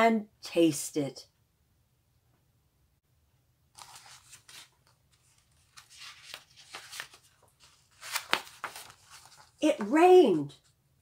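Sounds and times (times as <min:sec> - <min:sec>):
book pages rustling and flapping: 0:03.7 - 0:10.8.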